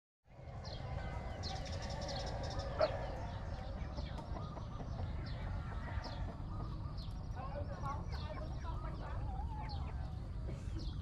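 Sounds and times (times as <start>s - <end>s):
steady low rumble: 0.3s - 11.0s.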